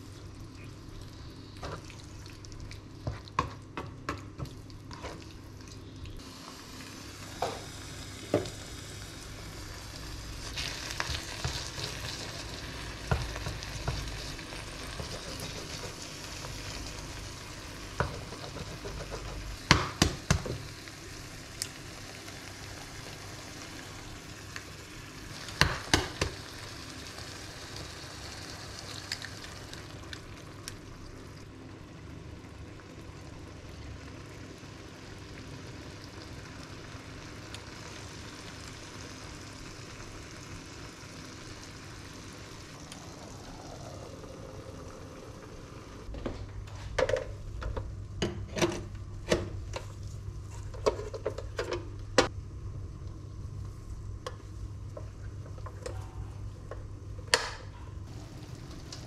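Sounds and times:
vegetables sizzling in a frying pan: 4.5s - 46.1s, 58.1s - 59.0s.

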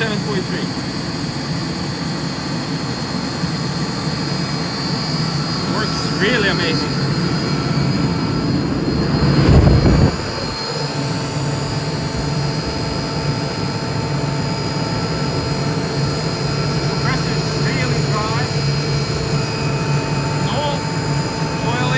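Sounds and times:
air compressor drone: 0.0s - 21.9s
faint high whine: 0.0s - 21.9s
loud air rushing: 7.5s - 11.8s.

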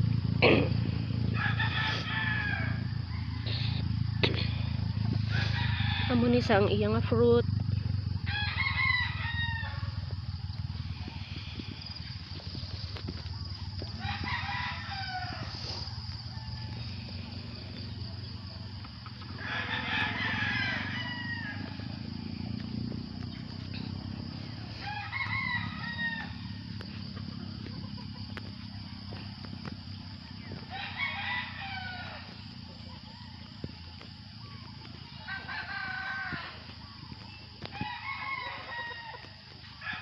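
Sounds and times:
steady low hum: 0.0s - 38.2s
rooster crowing: 1.2s - 6.6s, 8.2s - 10.1s, 13.3s - 22.5s, 23.3s - 27.6s, 28.2s - 33.8s, 35.1s - 40.0s.

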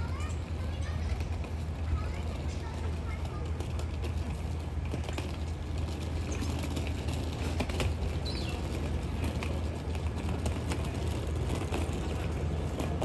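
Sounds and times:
city background hum: 0.0s - 13.0s
bird chirp: 8.2s - 8.7s.

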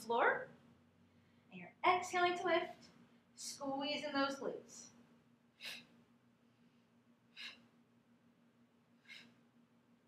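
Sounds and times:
woman's sharp breaths out: 5.6s - 6.0s, 7.3s - 7.7s, 9.0s - 9.4s.

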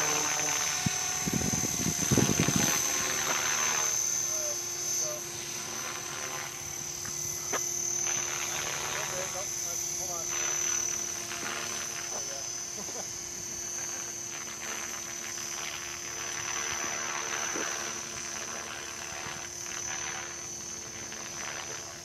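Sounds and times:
high insect trill: 0.0s - 22.0s
rc helicopter hum: 0.0s - 22.0s.

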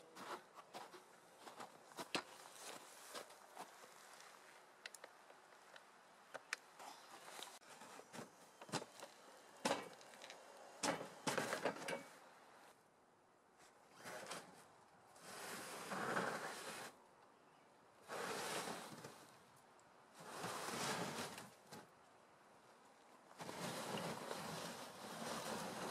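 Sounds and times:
scraping: 23.4s - 25.9s
tracked vehicle rattling over snow: 23.4s - 25.9s.

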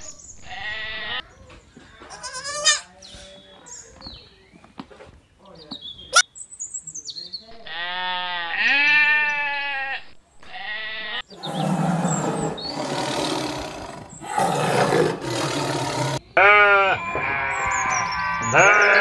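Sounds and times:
goat bleating: 2.1s - 2.9s, 7.7s - 12.9s, 16.4s - 19.0s
sheep bleating: 2.1s - 2.9s, 7.7s - 19.0s
lion roaring: 11.3s - 16.2s.

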